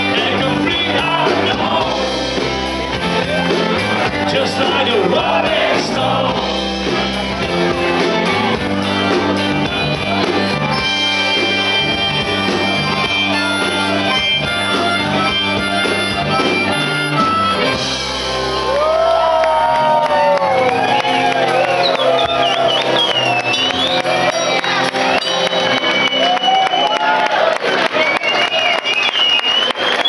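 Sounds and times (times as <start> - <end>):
harmonica long notes: 0.0 - 19.0
live rock band playing: 0.0 - 28.0.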